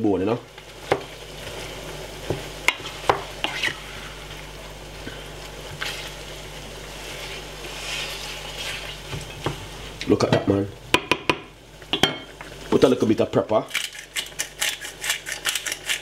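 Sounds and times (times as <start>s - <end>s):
sauce sizzling: 0.0s - 16.0s
wooden spoon stirring in saucepan: 0.6s - 4.4s, 5.1s - 10.0s.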